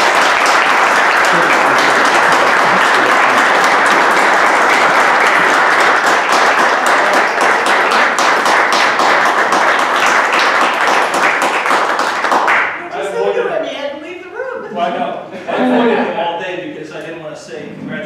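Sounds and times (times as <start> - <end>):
crowd applauding: 0.0 - 13.0.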